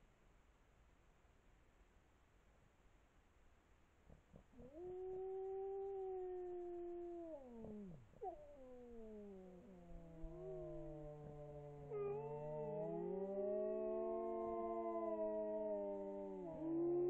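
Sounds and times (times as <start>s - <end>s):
wolves howling: 4.5s - 17.0s.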